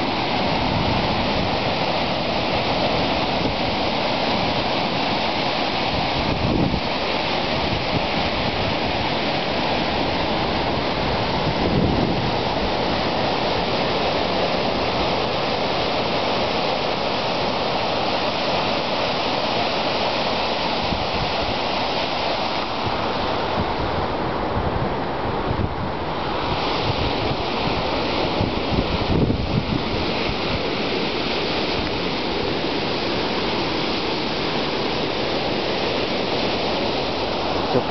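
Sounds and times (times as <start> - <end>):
ocean surf breaking on rocks: 0.0 - 37.9.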